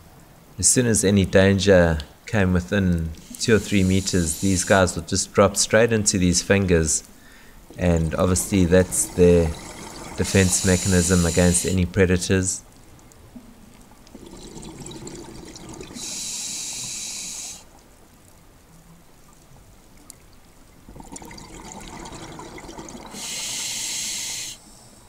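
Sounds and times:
diver breathing through regulator: 3.2 - 5.0, 8.9 - 11.8, 15.8 - 17.7, 23.1 - 25.0.

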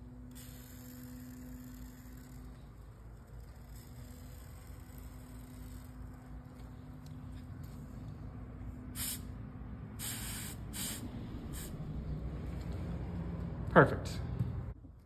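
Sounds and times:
spray paint can hissing: 0.2 - 2.6, 8.9 - 9.4, 10.0 - 11.8.

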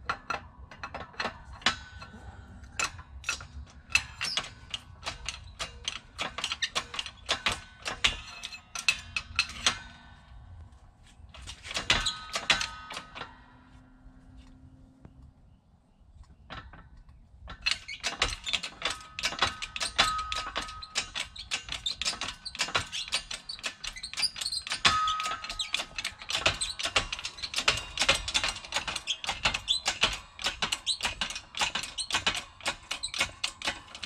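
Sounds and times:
shop press metallic clicks and rattles: 0.0 - 10.6, 11.3 - 13.7, 16.2 - 34.0
short squeaks: 17.6 - 34.0.

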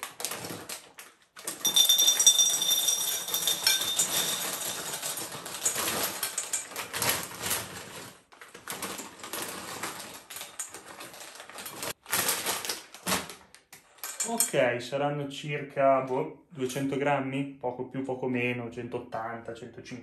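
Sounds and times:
dry pasta rattling into bowl: 0.0 - 13.0.

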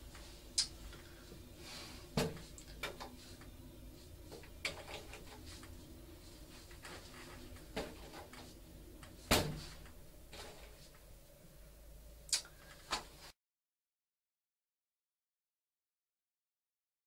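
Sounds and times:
low steady hum: 0.0 - 13.3.

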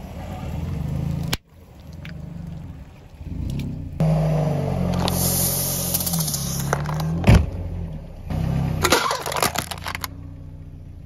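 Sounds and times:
car engine running: 0.0 - 11.0
bottle hissing and crackling: 5.1 - 6.9.

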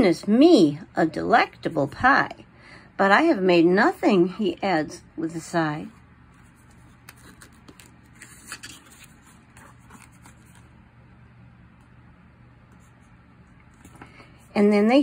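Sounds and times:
low steady hum: 0.0 - 15.0
paper page rustling: 6.3 - 10.8.

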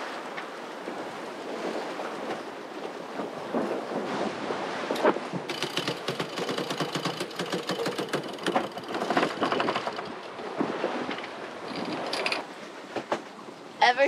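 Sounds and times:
pump clattering: 5.5 - 10.2.

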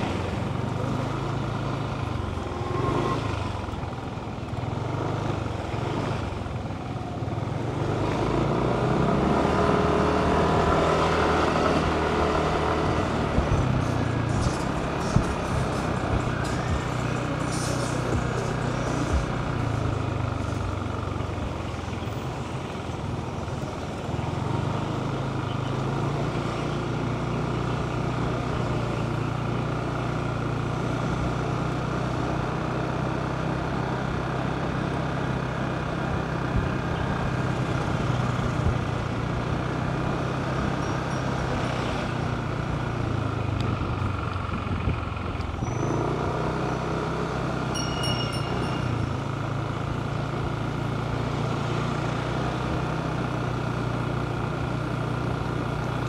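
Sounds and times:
motorcycle engine running: 0.0 - 56.0
road and wind noise: 0.0 - 56.0.

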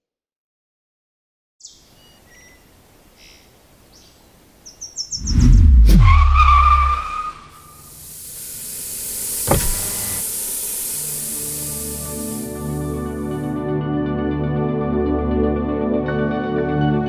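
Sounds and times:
faint bird chirps: 1.6 - 5.6
rising hiss: 5.1 - 13.6
loud whoosh with rumble: 5.2 - 7.5
wavering whine: 5.2 - 13.6
sharp hit: 8.3 - 13.5.

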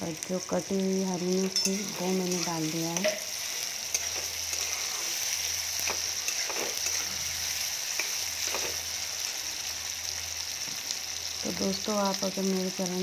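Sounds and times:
vegetables sizzling in hot oil: 0.0 - 13.0
metal spatula scraping pan: 1.4 - 8.8.

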